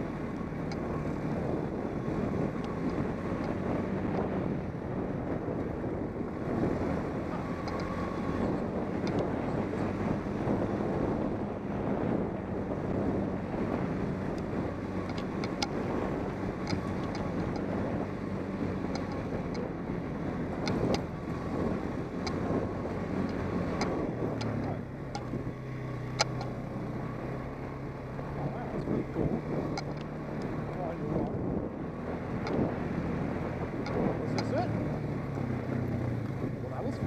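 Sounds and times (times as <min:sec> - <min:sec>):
atv engine running: 0:00.0 - 0:37.0
wind buffeting microphone: 0:00.0 - 0:37.0
clicks and knocks from bumpy ride: 0:06.6 - 0:10.2, 0:13.5 - 0:27.2, 0:27.8 - 0:37.0.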